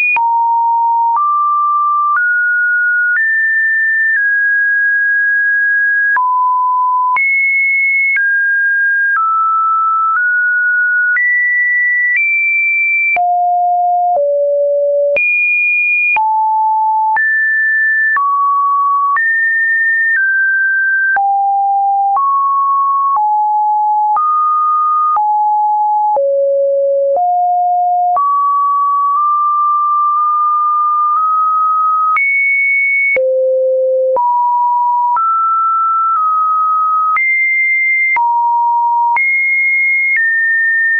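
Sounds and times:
pure sine tones: 33.2 - 37.2.

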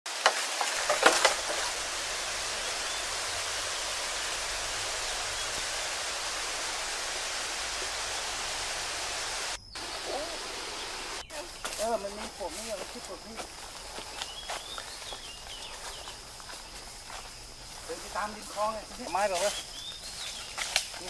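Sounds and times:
steady hiss: 0.1 - 21.0.

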